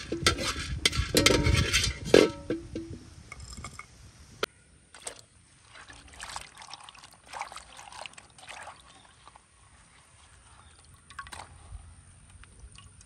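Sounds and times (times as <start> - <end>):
water sloshing in a clay bowl: 4.9 - 13.0.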